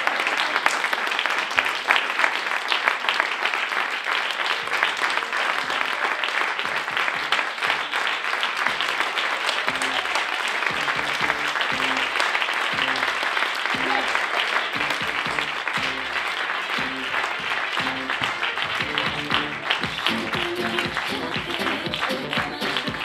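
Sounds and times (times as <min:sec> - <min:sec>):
audience applauding: 0:00.0 - 0:23.0
music with low bass notes: 0:10.7 - 0:12.1, 0:12.8 - 0:13.1, 0:14.8 - 0:16.2, 0:16.8 - 0:17.2, 0:17.8 - 0:23.0.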